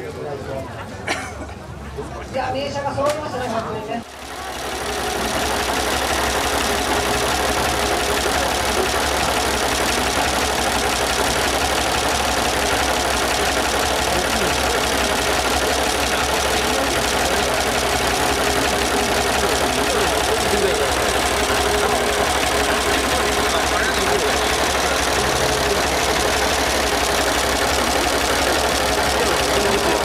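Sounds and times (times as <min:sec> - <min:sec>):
car engine idling: 0:04.0 - 0:30.0.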